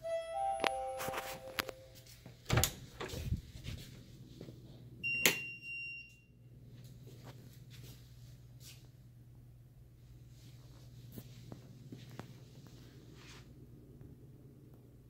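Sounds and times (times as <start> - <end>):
short high-pitched tone: 0.0 - 2.1
panel door clicks and knocks: 2.5 - 3.1
steady low hum: 6.4 - 15.0.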